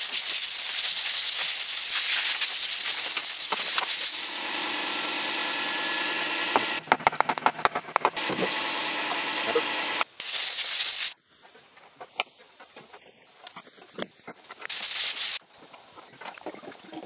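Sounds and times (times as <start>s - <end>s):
compressed air blow gun hissing: 0.0s - 4.5s, 10.1s - 11.2s, 14.7s - 15.4s.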